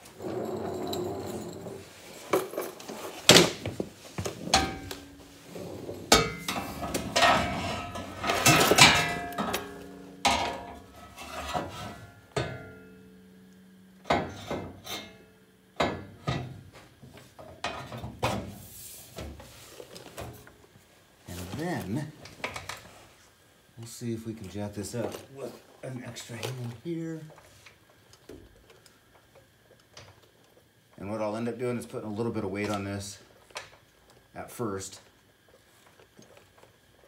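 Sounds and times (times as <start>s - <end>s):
steel tubing clanking and scraping: 4.4s - 12.8s.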